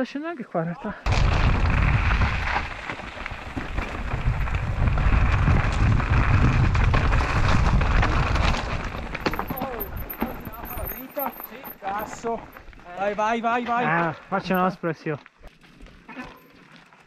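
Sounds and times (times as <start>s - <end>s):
wind buffeting microphone: 1.1s - 11.0s
bike rattling over stones: 1.1s - 17.0s
bike tyres crunching over gravel: 1.1s - 17.0s.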